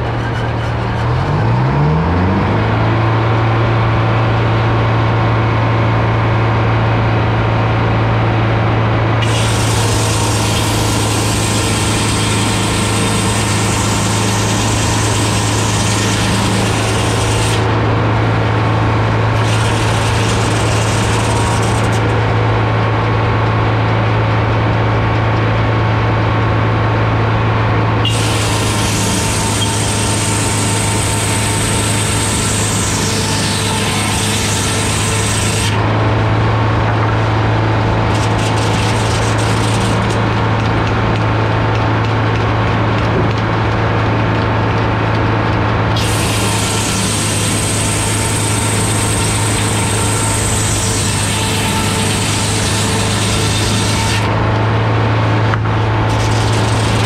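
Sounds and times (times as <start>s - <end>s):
circular saw blade cutting wood: 0.0s - 2.7s, 9.2s - 22.8s, 28.0s - 42.4s, 45.9s - 54.4s, 55.5s - 57.0s
diesel engine running: 0.0s - 57.0s.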